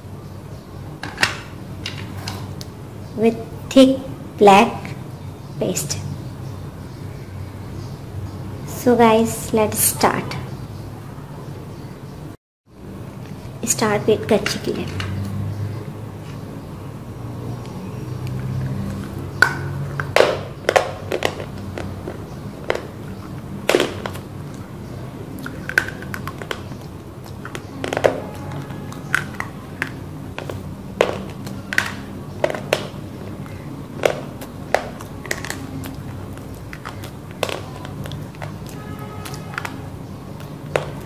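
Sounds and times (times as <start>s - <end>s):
crunchy chewing: 21.1s - 41.0s.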